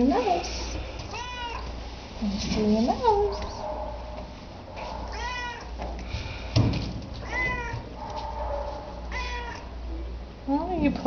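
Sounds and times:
cat meowing: 1.1 - 1.7, 5.1 - 5.8, 7.2 - 7.9, 9.1 - 9.7.

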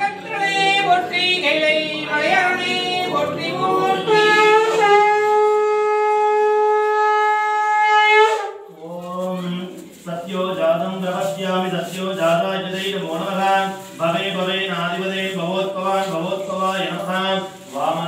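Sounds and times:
conch shell blown: 3.7 - 8.9.

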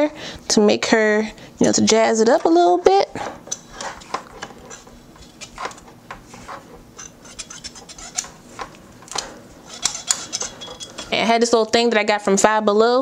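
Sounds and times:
curling iron clicks and hair rustling: 1.6 - 11.9.

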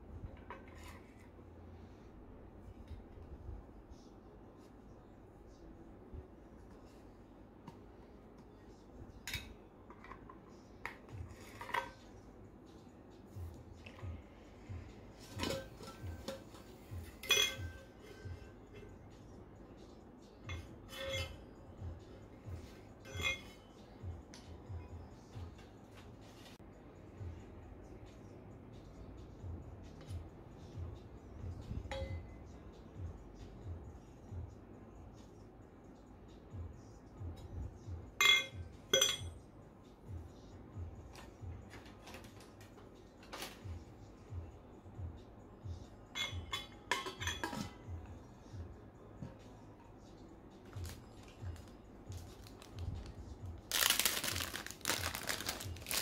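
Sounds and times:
background music with soft beat: 0.0 - 56.0
metal tumbler and straw clinking: 15.2 - 18.9, 20.5 - 21.4, 23.0 - 23.6, 38.2 - 39.3, 46.1 - 47.8, 53.7 - 56.0.

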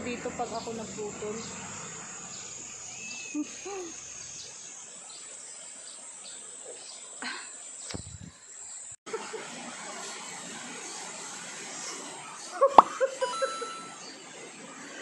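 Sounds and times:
high-pitched insect chorus: 0.0 - 9.0.

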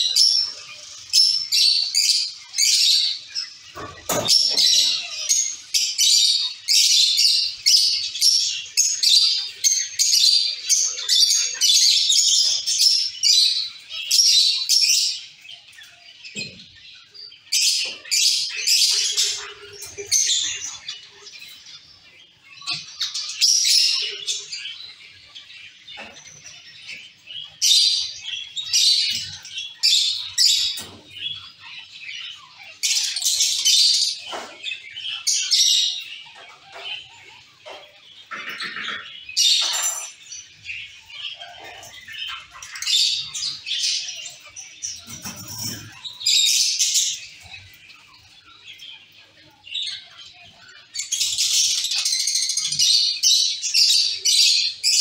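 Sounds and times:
finches chirping: 0.0 - 55.0.

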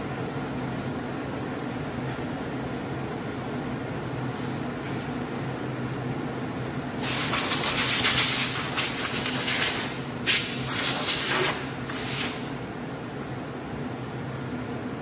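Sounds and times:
low machine hum: 0.0 - 15.0.

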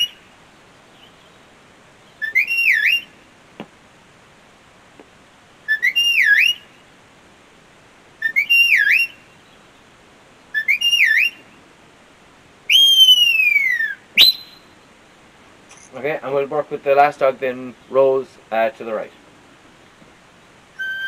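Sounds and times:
sheepdog whistle commands: 12.7 - 14.7, 20.8 - 21.0.

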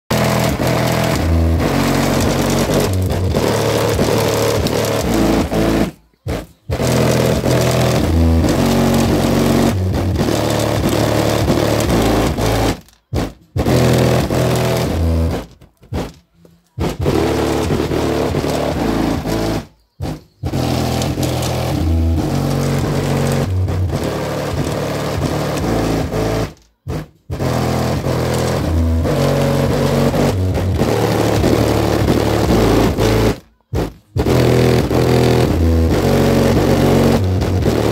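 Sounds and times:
bass-heavy music through subwoofers: 0.1 - 15.5, 16.8 - 37.9.

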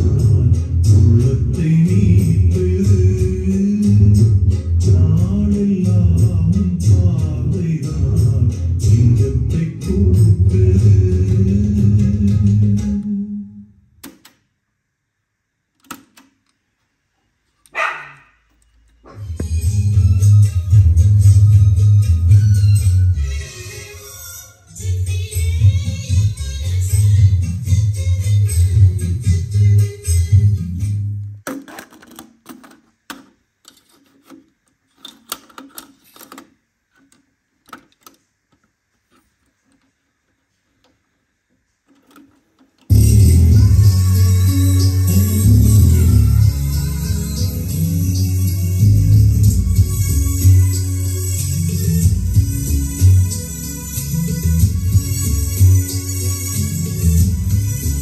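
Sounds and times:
music: 0.0 - 13.7, 19.2 - 31.4, 42.9 - 58.0
cassette deck plastic clicks: 14.0 - 14.4, 15.8 - 16.6
cassette scraping rattle: 31.5 - 38.2.

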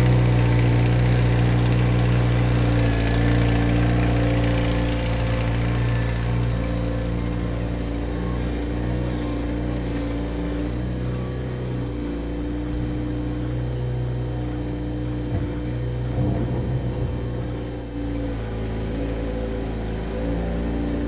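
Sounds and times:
loader engine running: 0.0 - 21.0
knocks and rattles: 15.1 - 18.0.

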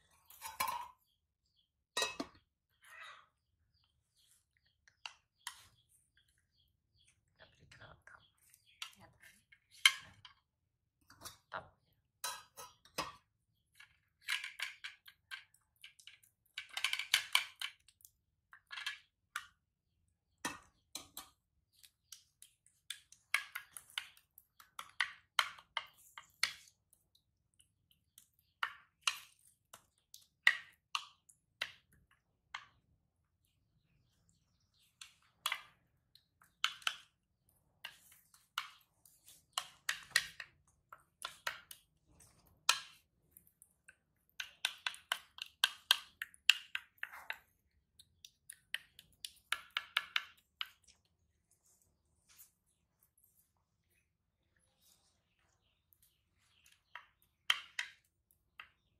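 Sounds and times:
spoon scraping porridge dish: 4.1 - 6.6, 20.5 - 32.0, 34.0 - 58.9.

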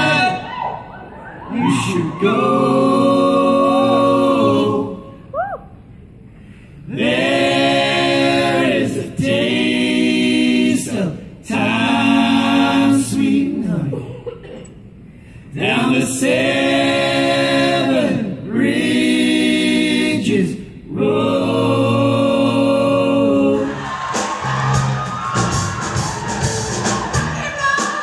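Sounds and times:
men singing a cappella: 0.0 - 0.4, 1.5 - 5.1, 6.9 - 14.0, 15.5 - 24.3.

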